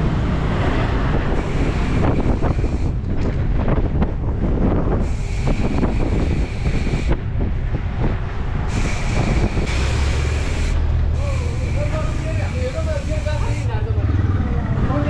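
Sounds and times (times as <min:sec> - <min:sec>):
wind buffeting microphone: 0:00.0 - 0:15.0
high hiss: 0:08.7 - 0:13.8.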